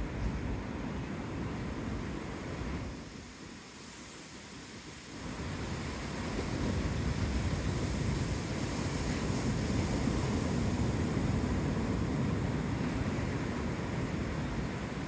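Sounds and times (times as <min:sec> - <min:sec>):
wind on microphone: 0:05.2 - 0:15.0.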